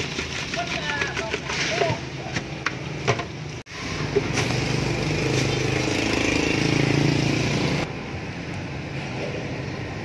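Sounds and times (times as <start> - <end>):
engine running: 3.8 - 8.0.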